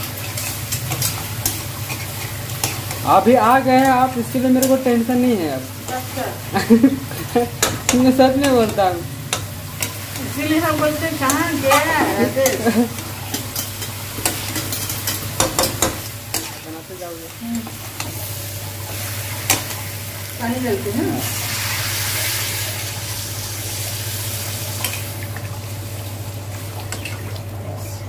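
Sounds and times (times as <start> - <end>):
vegetables sizzling: 0.0 - 28.0
spatula knocking on pan: 15.4 - 16.0.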